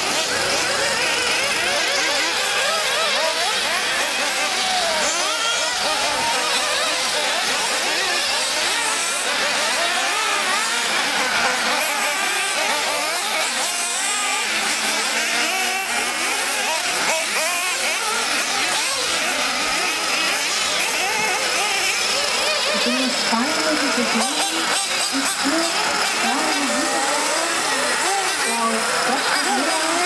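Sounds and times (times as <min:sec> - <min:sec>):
rc car engines whining: 0:00.0 - 0:30.0.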